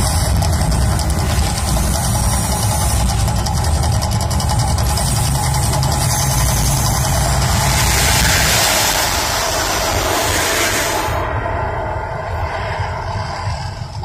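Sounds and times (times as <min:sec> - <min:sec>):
rapid crackling patter: 0:00.0 - 0:10.9
deep rumble: 0:00.0 - 0:14.0.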